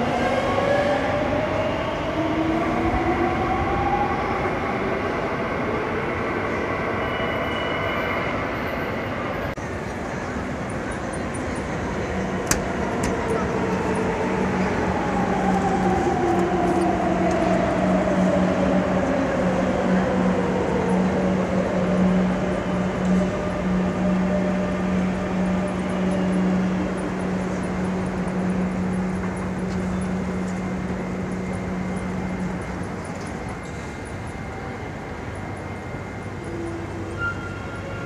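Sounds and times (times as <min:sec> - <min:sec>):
electric train braking whine: 0:10.3 - 0:38.0.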